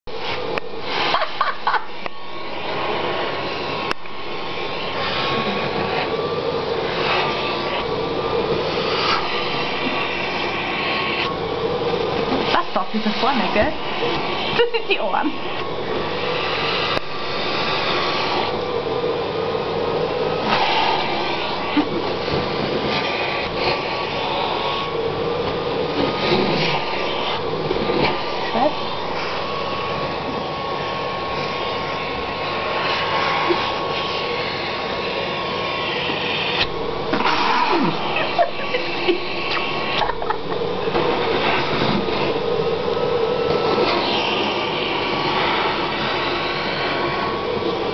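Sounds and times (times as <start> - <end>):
vacuum cleaner running: 0.0 - 47.9.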